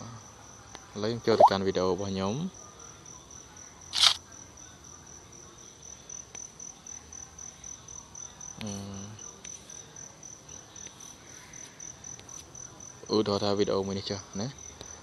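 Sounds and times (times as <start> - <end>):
sharp click: 4.0 - 4.2.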